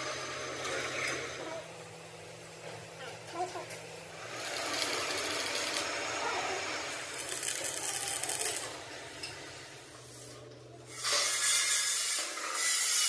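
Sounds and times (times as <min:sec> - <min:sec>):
welding arc crackling hiss: 0:04.2 - 0:06.0.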